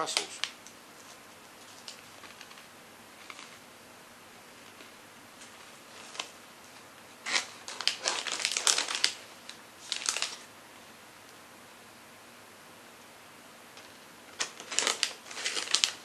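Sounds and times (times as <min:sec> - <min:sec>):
crunching pretzel chips: 0:07.2 - 0:10.5, 0:14.4 - 0:16.0.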